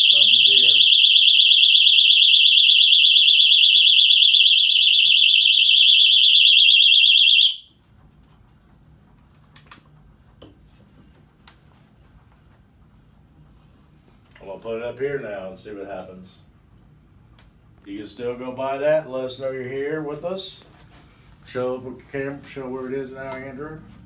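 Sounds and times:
alarm warbling tone: 0:00.0 - 0:07.6.

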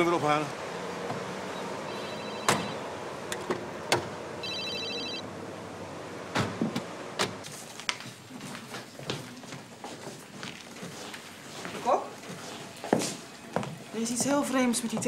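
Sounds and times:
car doors shutting: 0:01.1 - 0:04.2, 0:06.3 - 0:07.4
electronic telephone ring: 0:01.9 - 0:02.8, 0:04.4 - 0:05.2.

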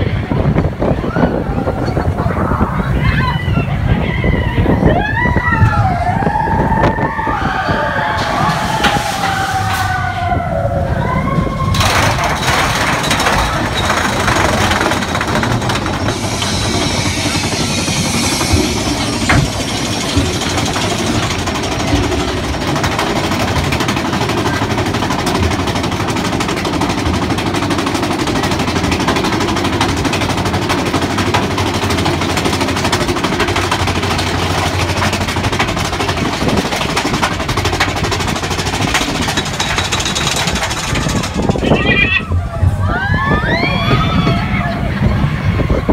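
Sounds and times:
roller coaster rattling on track: 0:00.0 - 0:45.9.

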